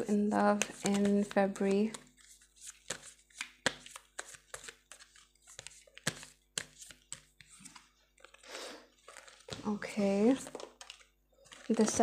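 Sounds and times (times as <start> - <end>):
cards being shuffled: 0.3 - 8.4, 9.0 - 9.7.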